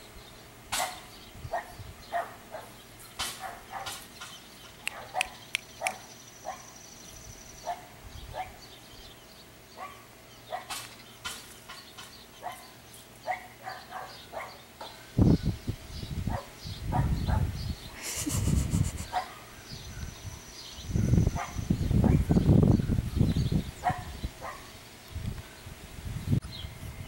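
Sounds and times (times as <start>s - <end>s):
puppy yipping and barking: 4.8s - 6.7s, 23.8s - 24.7s.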